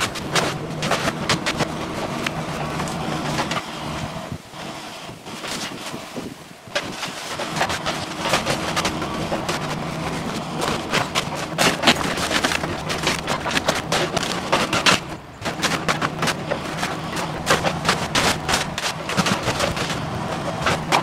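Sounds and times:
splintering wood cracking: 0:00.0 - 0:04.1, 0:05.3 - 0:21.0
excavator engine under load: 0:00.0 - 0:21.0
falling debris: 0:05.4 - 0:21.0.

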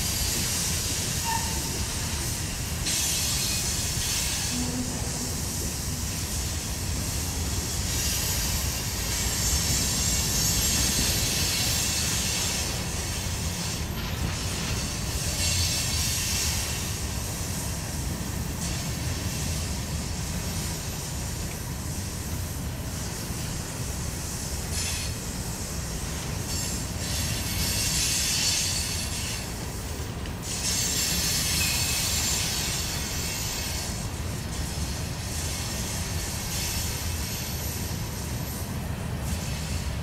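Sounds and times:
train wheels rumbling on rail: 0:00.0 - 0:40.0
wheels squealing: 0:01.0 - 0:02.1.

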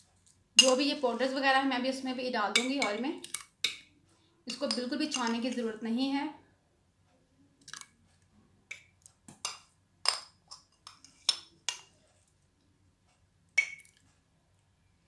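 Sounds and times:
metal spoon clinking on glass: 0:00.6 - 0:00.9.

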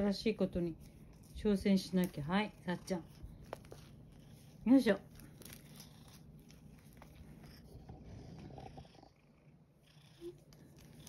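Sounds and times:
cat purring faintly: 0:02.4 - 0:11.0.

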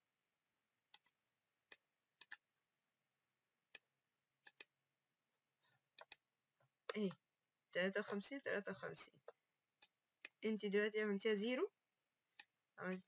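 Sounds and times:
computer mouse clicks: 0:00.9 - 0:02.4, 0:04.5 - 0:04.7, 0:06.0 - 0:06.2
keyboard clicks: 0:06.0 - 0:06.2.

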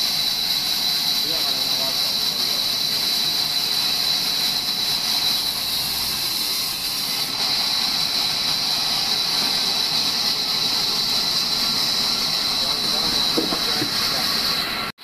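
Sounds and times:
band saw cutting log: 0:00.0 - 0:14.9.

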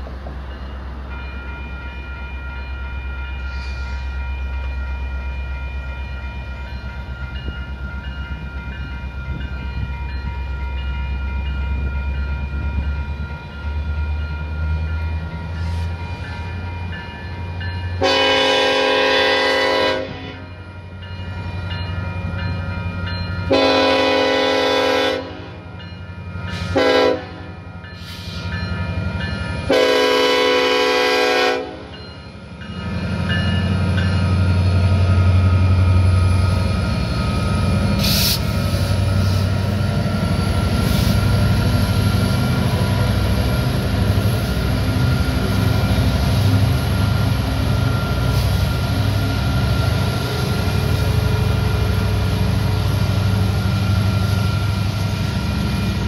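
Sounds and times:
crossing bell ringing: 0:00.0 - 0:38.0, 0:38.8 - 0:56.0
locomotive horn: 0:18.0 - 0:20.6, 0:23.5 - 0:25.6, 0:26.6 - 0:27.7, 0:29.6 - 0:31.9.

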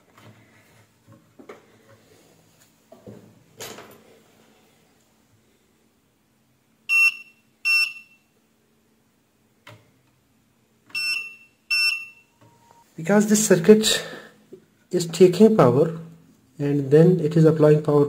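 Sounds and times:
short high electronic beeps: 0:11.0 - 0:12.8.

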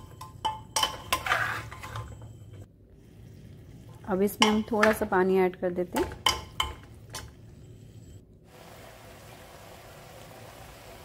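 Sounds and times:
spoon clinking on metal pot: 0:00.0 - 0:02.2, 0:04.3 - 0:05.2, 0:06.0 - 0:07.3.

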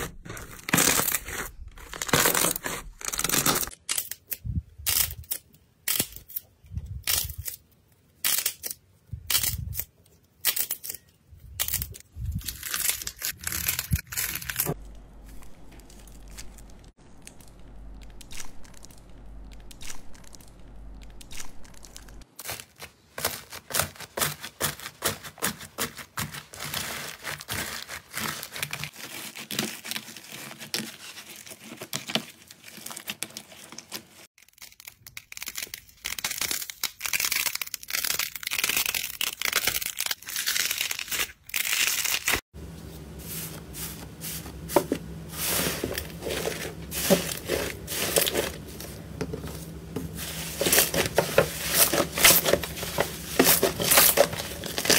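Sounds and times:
plastic crinkling: 0:10.5 - 0:54.9
slime crackling and popping: 0:15.4 - 0:22.6.

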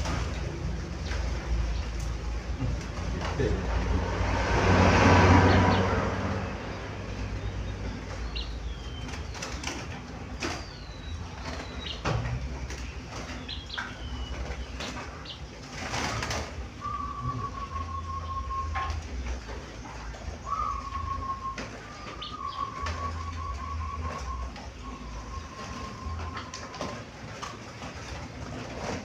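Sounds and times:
loud rush of noise: 0:02.6 - 0:07.8
dove cooing: 0:15.3 - 0:19.2, 0:20.0 - 0:27.3.

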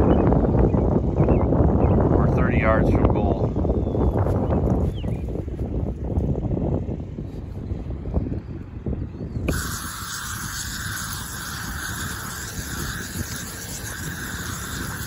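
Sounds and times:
wind rumble on microphone: 0:00.0 - 0:15.0
aerosol paint can spraying: 0:09.5 - 0:15.0.

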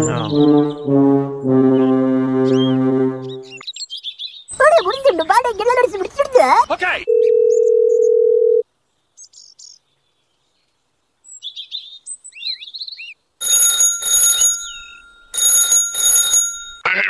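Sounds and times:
birds chirping: 0:00.0 - 0:08.0, 0:14.2 - 0:15.2
phone ringtone ringing: 0:07.1 - 0:08.6, 0:13.4 - 0:17.0
telephone dial tone: 0:07.1 - 0:08.6, 0:13.4 - 0:16.8.

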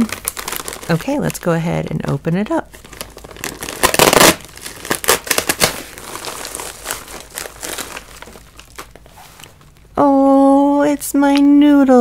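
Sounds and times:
package tearing open: 0:00.0 - 0:01.4, 0:02.8 - 0:09.1
wrapping crinkling: 0:00.0 - 0:10.0.

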